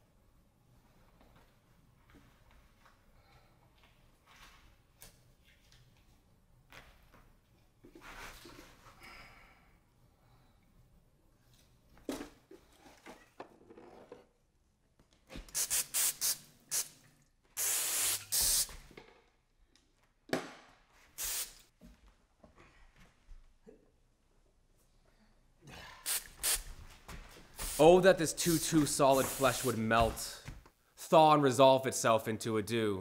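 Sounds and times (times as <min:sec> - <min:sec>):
aerosol spray can hissing: 0:15.5 - 0:17.0, 0:17.6 - 0:18.8, 0:21.2 - 0:21.6, 0:26.1 - 0:26.7, 0:27.6 - 0:29.9.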